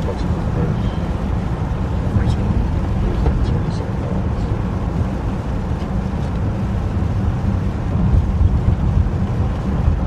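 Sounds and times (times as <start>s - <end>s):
wind: 0.0s - 10.0s.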